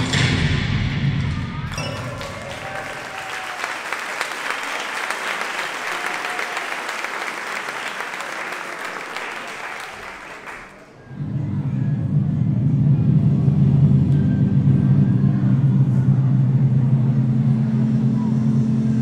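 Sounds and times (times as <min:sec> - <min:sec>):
audience applause: 0:01.7 - 0:11.0.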